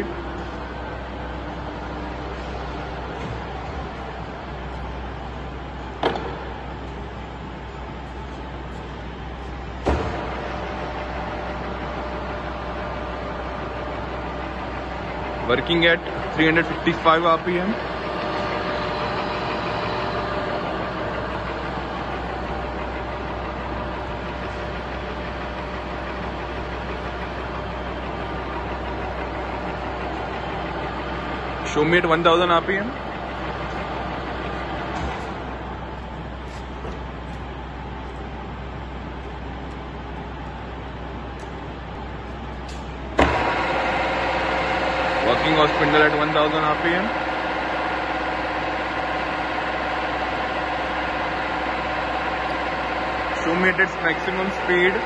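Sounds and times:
milling machine running: 0.0s - 55.0s.

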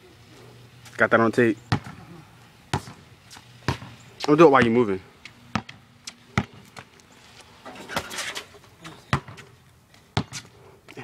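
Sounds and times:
basketball bouncing on concrete: 1.7s - 2.0s, 2.7s - 6.9s, 7.9s - 10.5s.

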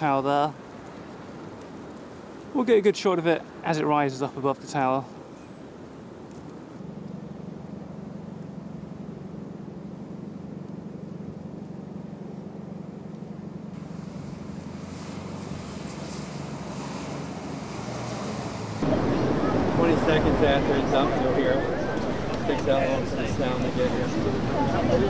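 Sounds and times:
vehicle engine idling: 6.8s - 16.6s.

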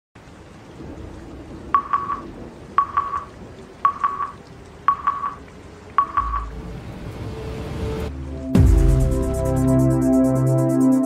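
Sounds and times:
electronic countdown beeps: 1.8s - 2.2s, 2.8s - 6.5s.

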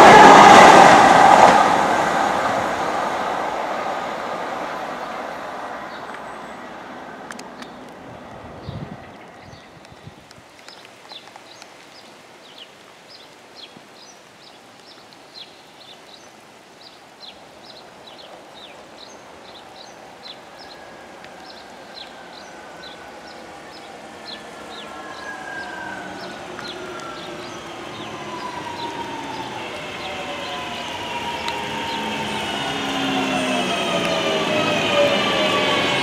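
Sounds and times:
electric train whine: 0.0s - 5.8s, 22.2s - 36.0s.

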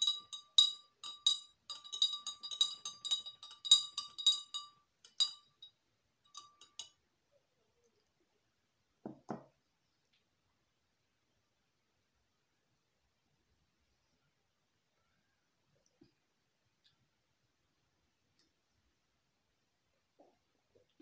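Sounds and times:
spoon clinking against glass: 0.0s - 7.0s.

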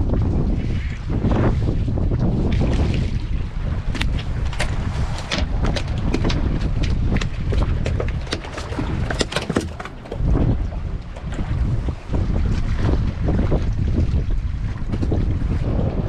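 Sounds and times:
wind buffeting microphone: 0.0s - 16.0s
fish slapping on boat deck: 3.8s - 11.8s.

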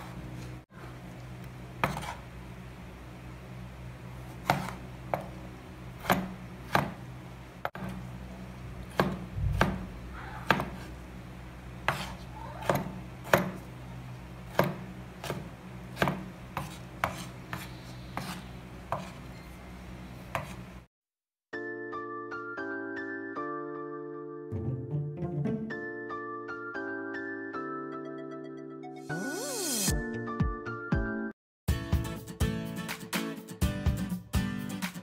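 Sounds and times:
steady low hum: 0.0s - 20.9s
knife chopping on wooden board: 1.8s - 2.2s, 4.3s - 5.4s, 6.0s - 7.0s, 8.9s - 10.9s, 11.8s - 13.7s, 14.5s - 19.2s, 20.3s - 20.6s.

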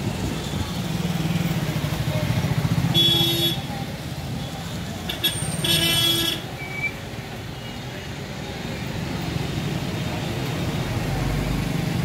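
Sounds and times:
slow road traffic: 0.0s - 12.0s
vehicle horn: 2.9s - 3.7s, 5.2s - 6.4s.

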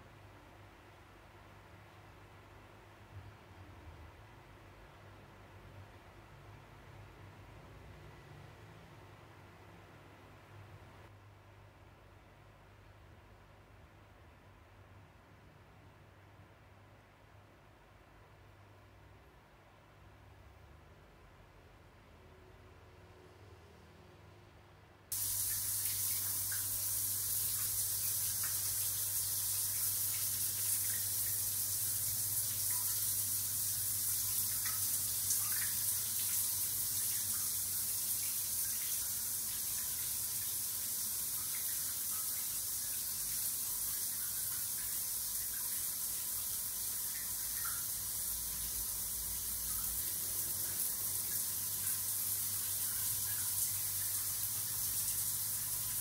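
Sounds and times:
shower spraying water: 25.1s - 56.0s.

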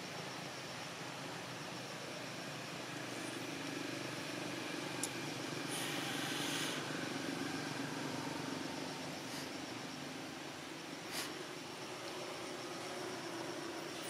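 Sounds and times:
outdoor hiss: 0.0s - 14.0s
short hiss: 5.7s - 6.8s, 11.1s - 11.4s.

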